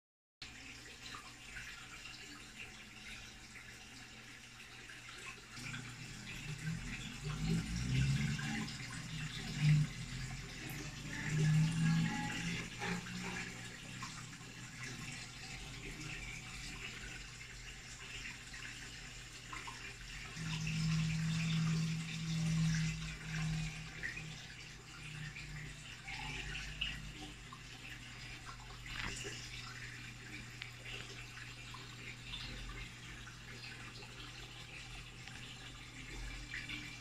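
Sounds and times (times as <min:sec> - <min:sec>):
water splashing and trickling: 0:00.4 - 0:37.0
low electric hum: 0:00.5 - 0:37.0.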